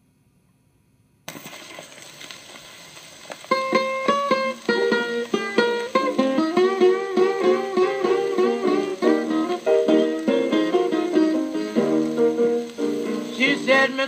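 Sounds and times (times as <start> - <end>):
record surface hiss: 0.0 - 14.0
blues guitar plucked notes: 3.5 - 14.0.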